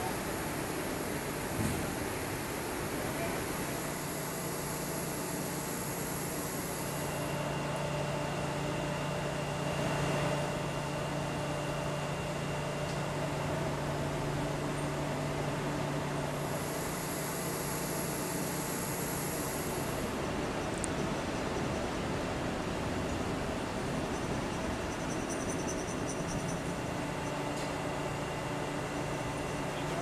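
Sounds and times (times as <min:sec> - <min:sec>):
thin high whine: 0:00.0 - 0:12.8, 0:16.2 - 0:20.7
shop machinery hum and hiss: 0:00.0 - 0:30.0.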